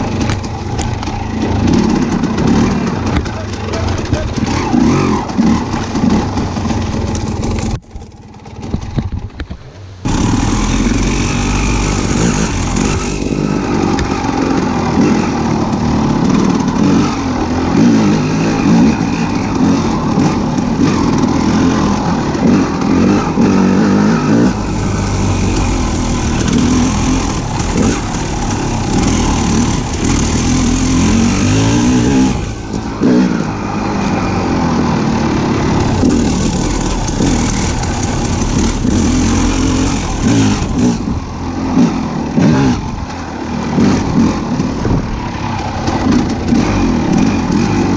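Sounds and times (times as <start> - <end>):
vehicle engine revving: 0.0 - 7.8, 10.0 - 47.9.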